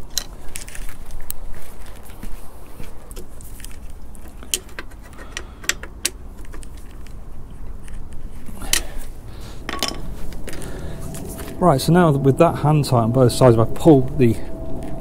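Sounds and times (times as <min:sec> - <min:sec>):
metallic clicks of hand tools: 0:04.2 - 0:07.0.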